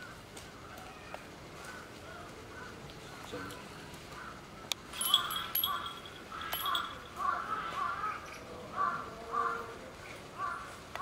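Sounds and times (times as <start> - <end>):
bird cawing: 4.1 - 9.6.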